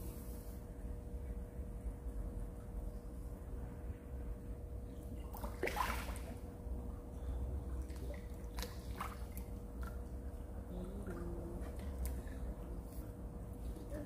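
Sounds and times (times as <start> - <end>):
faint steady hum: 0.0 - 14.0
splash into pond water: 5.3 - 6.4.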